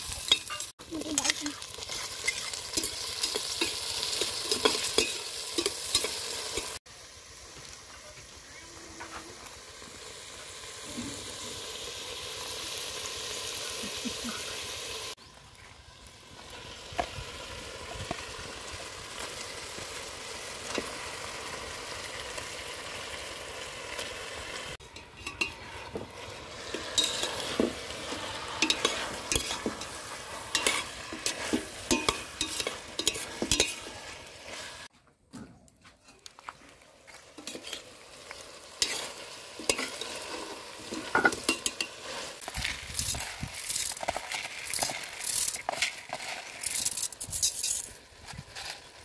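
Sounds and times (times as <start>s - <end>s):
food sizzling in oil: 0.0s - 34.9s, 36.8s - 49.0s
spoon stirring and scraping pot: 0.1s - 6.8s, 24.8s - 34.9s, 37.1s - 48.9s.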